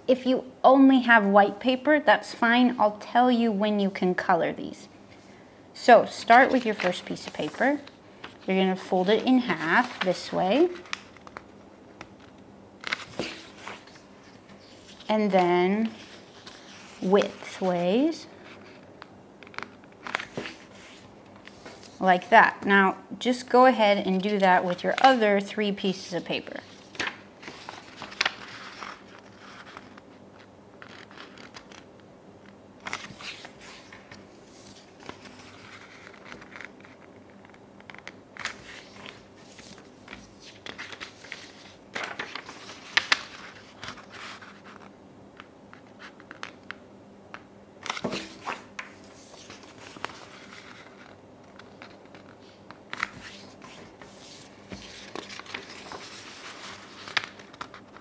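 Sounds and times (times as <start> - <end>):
paper rustling and crinkling: 6.2 - 22.2, 26.3 - 32.0, 32.8 - 46.8, 47.8 - 58.0
paper creases crackling: 6.2 - 22.3, 25.9 - 32.0, 32.8 - 44.9, 47.8 - 58.0.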